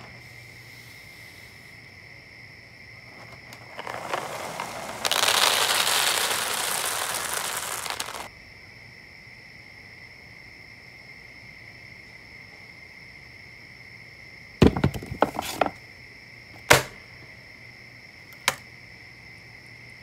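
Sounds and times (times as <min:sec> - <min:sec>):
rustling noise: 0:03.1 - 0:08.3
loud dense crackling: 0:03.2 - 0:08.3.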